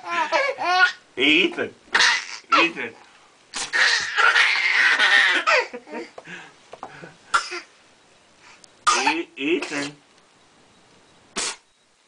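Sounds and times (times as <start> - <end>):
baby laughing: 0.0 - 1.0, 2.0 - 2.7, 3.7 - 6.2
breathy cough-like vocal outburst: 7.3 - 7.7, 8.9 - 10.0.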